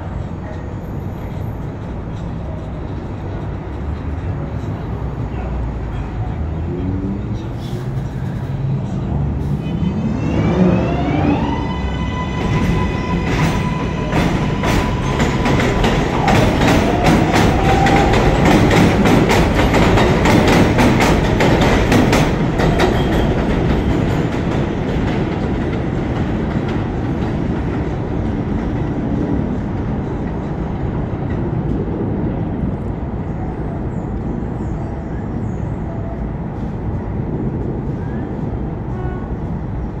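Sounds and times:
train rumble: 0.0 - 40.0
train wheels clacking over rail joints: 12.5 - 31.8.

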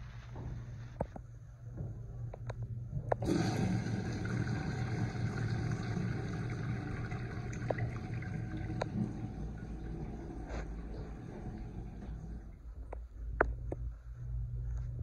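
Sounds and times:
water rushing down urinal: 3.2 - 12.6.

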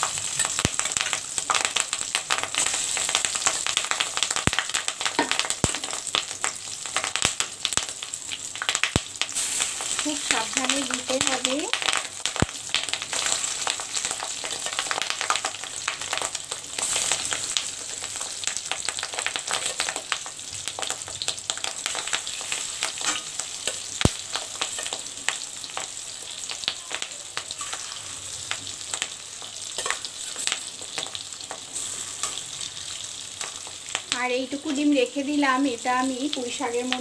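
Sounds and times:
roe sizzling and popping in oil: 0.0 - 37.0
metal spatula scraping a pan: 22.3 - 23.8.

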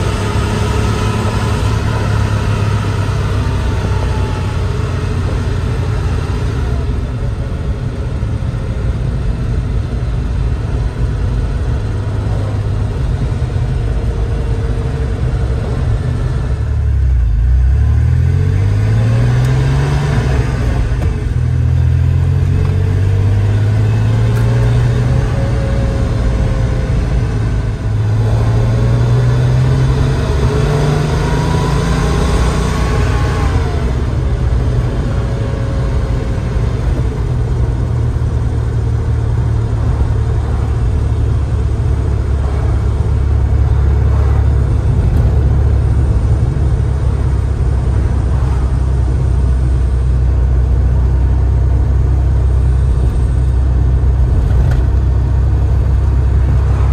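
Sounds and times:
road noise: 0.0 - 56.9
car engine revving from cabin: 17.6 - 49.6, 55.6 - 56.9.

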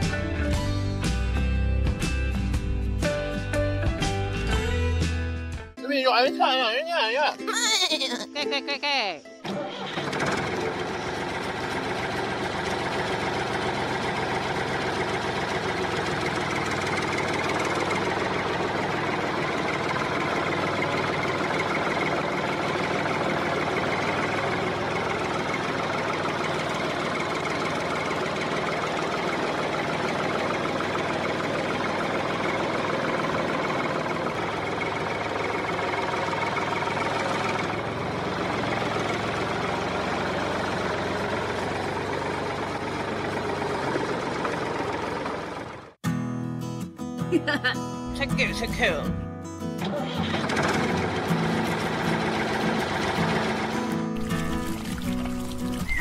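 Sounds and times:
small engine running: 9.4 - 46.0, 49.8 - 56.0.

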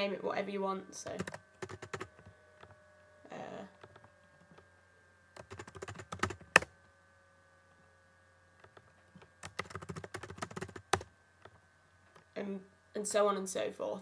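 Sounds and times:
computer keyboard typing: 1.0 - 2.8, 3.8 - 4.6, 5.4 - 6.7, 8.6 - 12.2.

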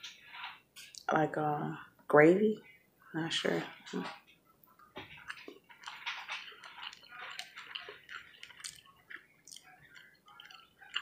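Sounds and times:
chewing food: 3.6 - 11.0.

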